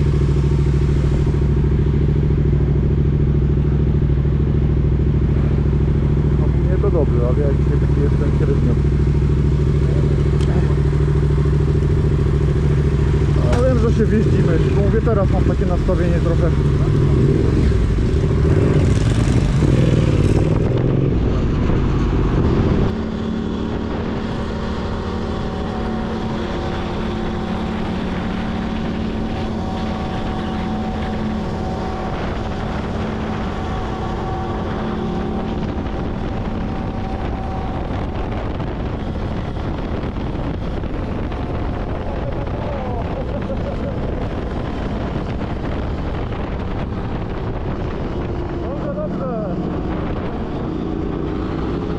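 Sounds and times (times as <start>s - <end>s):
motorcycle engine running: 0.0s - 51.9s
wind on microphone: 16.5s - 51.9s.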